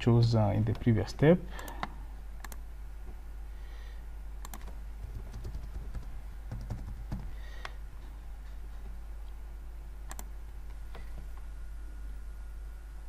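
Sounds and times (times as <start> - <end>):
steady low hum: 0.0 - 13.0
clicks: 0.7 - 2.6, 4.4 - 4.8, 10.1 - 11.5
computer keyboard keystrokes: 4.4 - 7.3, 10.1 - 10.3.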